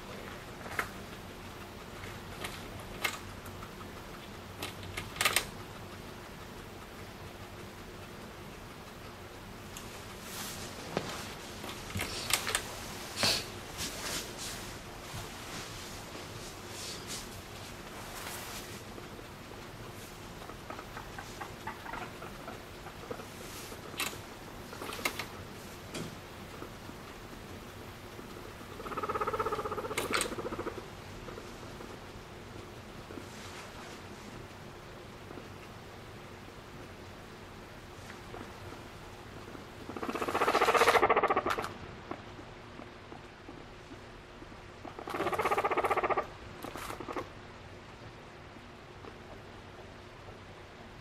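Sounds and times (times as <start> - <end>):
guinea pig purring trill: 0.0 - 10.3, 18.0 - 25.5, 26.5 - 33.2, 38.2 - 42.3, 44.7 - 47.4.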